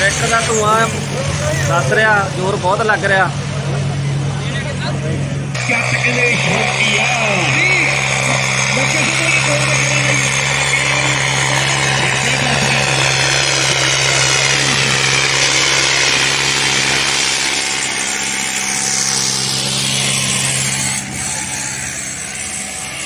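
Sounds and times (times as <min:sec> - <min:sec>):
tractor diesel engine under load: 0:00.0 - 0:23.0
harrow dragging through sand: 0:05.6 - 0:23.0.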